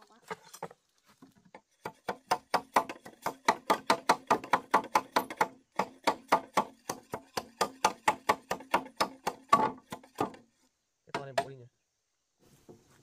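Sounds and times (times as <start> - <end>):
knife chopping bamboo: 1.8 - 10.4.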